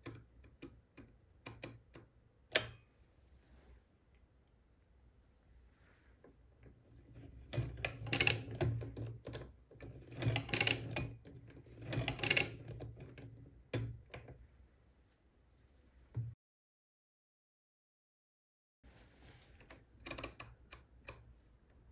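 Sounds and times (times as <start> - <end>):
calculator crank gear clicks: 11.8 - 12.8.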